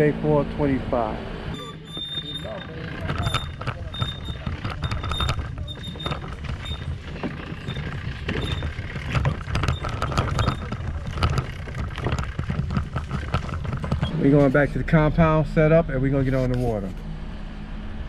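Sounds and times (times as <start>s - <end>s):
cart wheels rumbling on pavement: 1.6s - 16.8s
plastic hull clicking and rattling: 2.0s - 14.2s.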